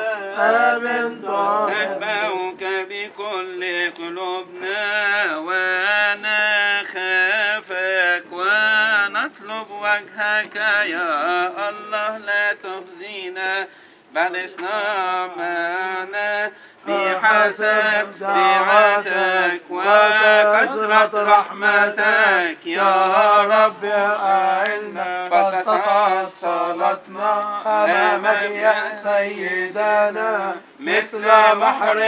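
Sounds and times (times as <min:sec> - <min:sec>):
singer breathing: 0:13.7 - 0:14.1, 0:16.5 - 0:16.9
man chanting: 0:14.2 - 0:32.0.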